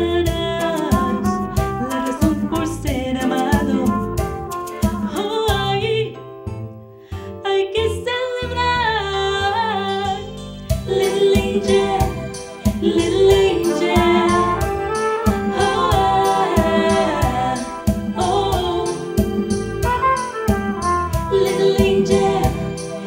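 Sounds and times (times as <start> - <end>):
woman singing into a microphone: 0.0 - 4.1, 4.7 - 6.2, 7.4 - 14.8, 15.5 - 19.4, 21.3 - 22.8
bass: 0.0 - 23.0
drum hits: 11.4 - 22.7
flugelhorn playing: 13.7 - 17.9, 19.6 - 22.4.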